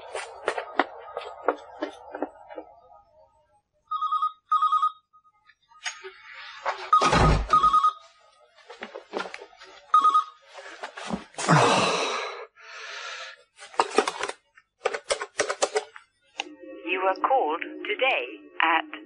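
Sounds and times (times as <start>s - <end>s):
telephone ringing: 3.9s - 5.3s, 6.9s - 8.1s, 9.9s - 10.4s.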